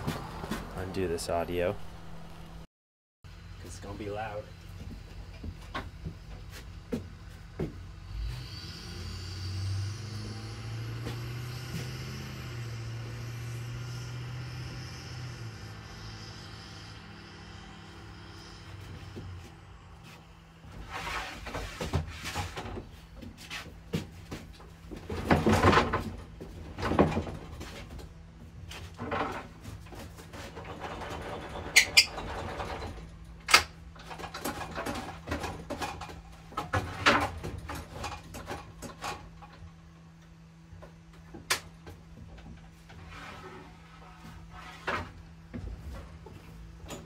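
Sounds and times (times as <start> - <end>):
wooden boards knocking and scraping: 20.7 - 28.0.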